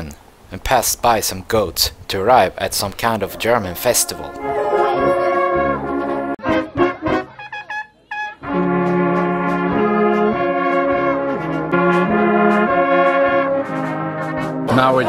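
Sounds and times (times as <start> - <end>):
brass band playing slow tune: 3.3 - 14.9.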